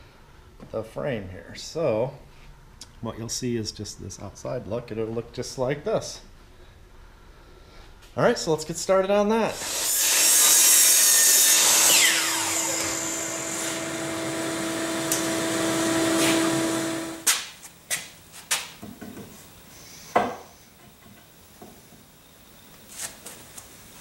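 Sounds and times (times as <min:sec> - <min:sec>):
dust extraction vacuum humming: 0:08.5 - 0:17.3
miter saw cutting wood: 0:09.5 - 0:17.3
saw blade spinning down: 0:09.5 - 0:17.3.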